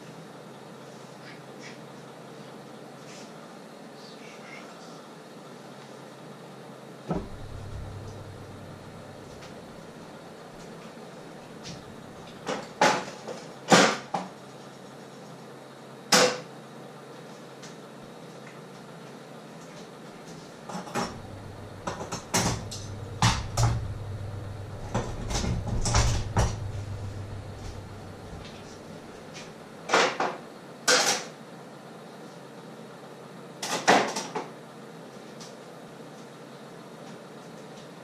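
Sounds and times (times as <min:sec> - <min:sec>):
low hum: 0:07.1 - 0:10.7, 0:11.3 - 0:12.6, 0:21.0 - 0:29.6.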